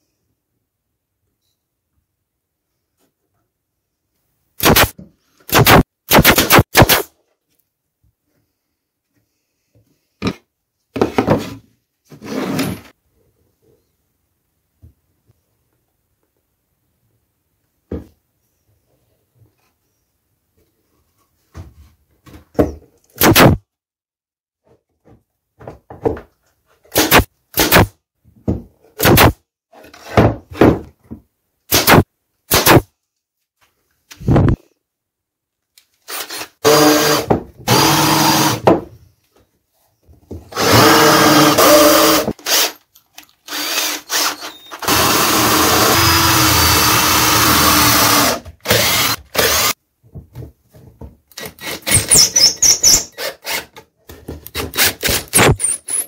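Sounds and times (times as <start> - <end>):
cordless drill boring into wood: 36.1 - 38.7, 40.5 - 42.8, 43.4 - 49.8, 51.4 - 53.7.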